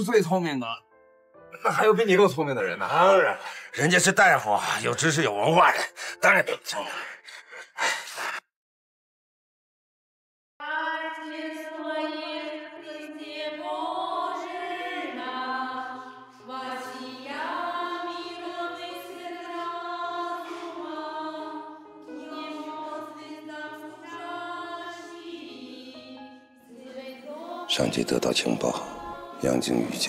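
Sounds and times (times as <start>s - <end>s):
choir singing a hymn: 10.6s - 30.0s.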